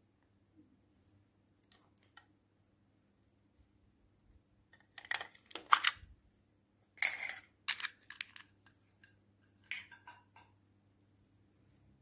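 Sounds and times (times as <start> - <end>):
plastic items clicking and crinkling: 4.7 - 6.0, 7.0 - 10.5.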